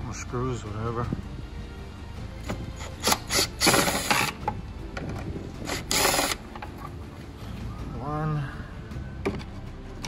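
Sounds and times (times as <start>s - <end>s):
cordless drill running: 3.0s - 4.4s, 5.7s - 6.4s.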